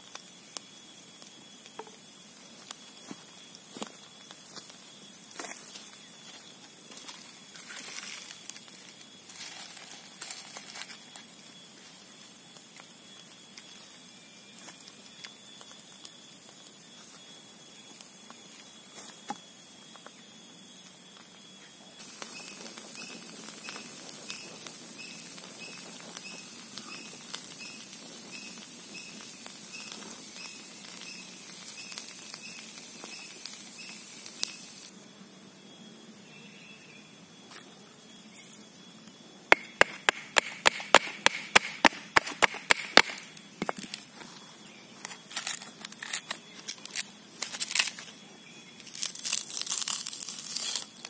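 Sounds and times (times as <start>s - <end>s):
campfire crackling and popping: 0.0s - 5.4s, 22.0s - 34.9s, 39.5s - 44.0s
high insect drone: 0.0s - 51.0s.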